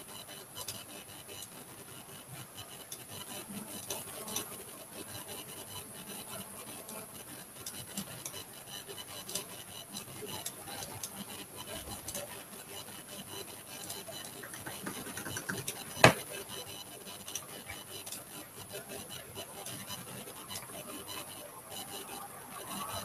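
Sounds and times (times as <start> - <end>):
faint scratching and small clicks: 0.0 - 23.0.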